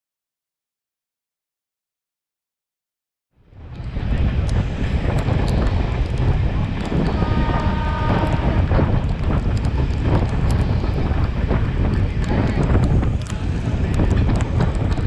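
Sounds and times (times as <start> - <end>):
train wheels rumbling on track: 3.4 - 15.0
wind buffeting: 3.4 - 15.0.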